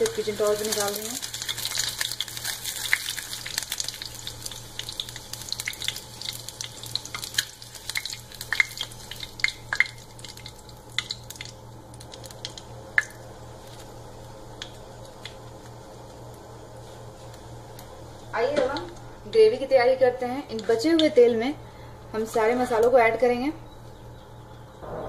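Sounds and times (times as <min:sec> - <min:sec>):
hot oil sizzling in a pan: 0:00.0 - 0:19.2.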